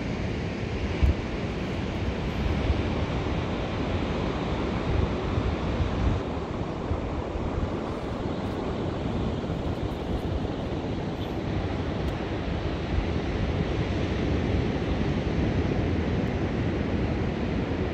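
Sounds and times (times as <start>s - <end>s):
ocean surf: 0.0s - 17.9s
wind buffeting microphone: 0.9s - 13.8s.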